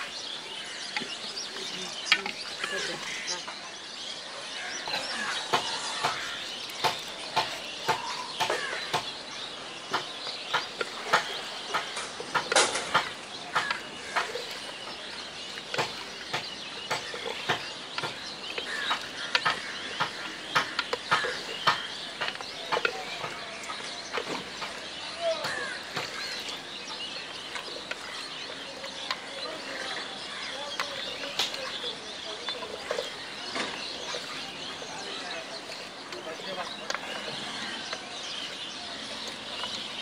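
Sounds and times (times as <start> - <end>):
wooden stick knocking on metal pot: 5.5 - 40.0.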